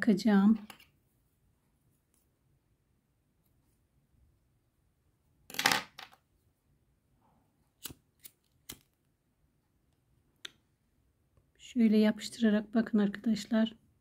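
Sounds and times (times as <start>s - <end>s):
scissors snipping yarn: 7.8s - 9.0s.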